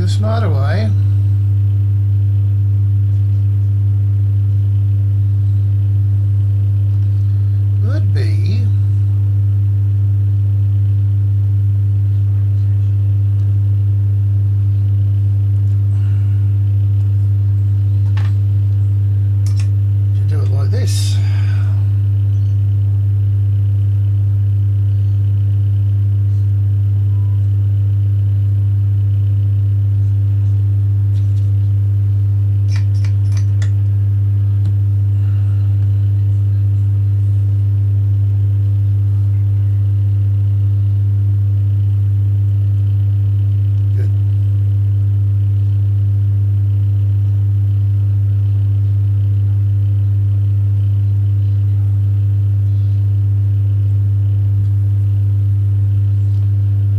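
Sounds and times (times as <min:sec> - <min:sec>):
low electrical hum: 0:00.0 - 0:56.9.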